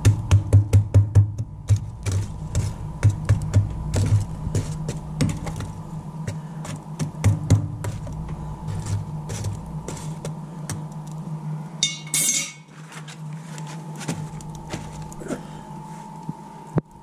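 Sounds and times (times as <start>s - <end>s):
poker raking coals: 1.7s - 11.3s.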